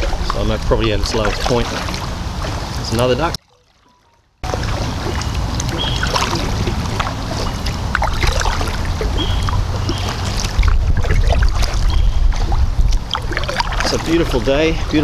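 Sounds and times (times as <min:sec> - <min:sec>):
paddle splashing water: 0:00.0 - 0:15.0
low rumble: 0:04.4 - 0:14.9.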